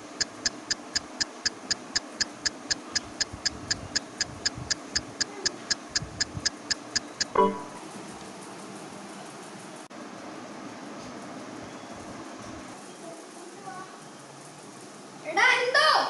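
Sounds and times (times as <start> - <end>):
clock-like ticking: 0.0 - 7.8
loud pitched tone: 7.3 - 7.8.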